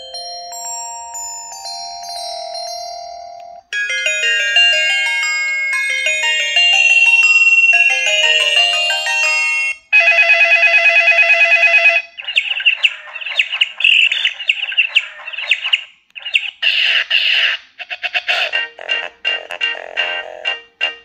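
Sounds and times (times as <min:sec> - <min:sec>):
chiming ringtone melody: 0:00.0 - 0:15.6
synthesized bird chirps: 0:12.0 - 0:17.5.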